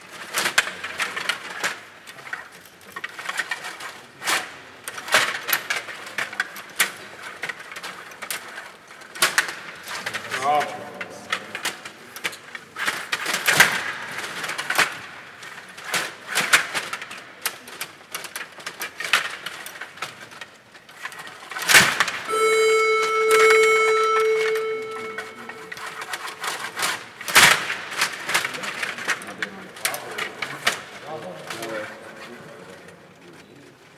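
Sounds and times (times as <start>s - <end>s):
table hockey clicks and clatter: 0.0s - 22.3s, 25.8s - 32.1s
steady electronic beep: 22.3s - 26.4s.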